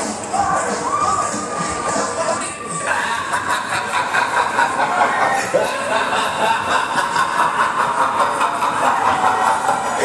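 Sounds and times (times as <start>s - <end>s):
fairground ride noise: 0.0s - 10.0s
riders talking and laughing: 2.7s - 10.0s.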